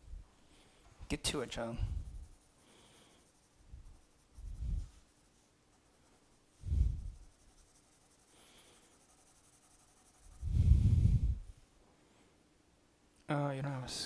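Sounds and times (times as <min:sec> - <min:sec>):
pencil shading on paper: 0:01.3 - 0:11.0.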